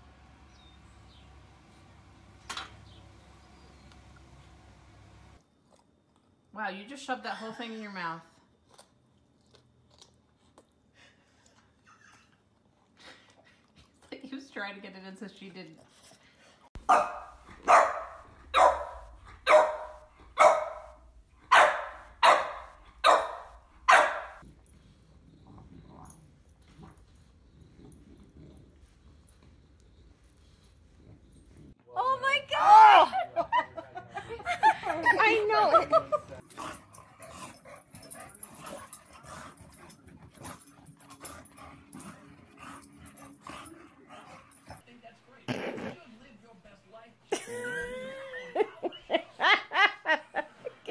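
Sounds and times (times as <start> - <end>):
dogs play-fighting: 15.7 - 31.8, 34.7 - 45.9
dog barking: 16.8 - 24.4.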